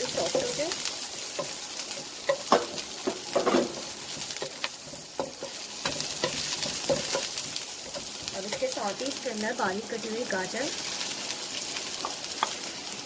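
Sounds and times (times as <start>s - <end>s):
onion and garlic sizzling in oil: 0.0s - 13.0s
spatula scraping and tapping pan: 1.3s - 8.8s, 12.0s - 12.6s.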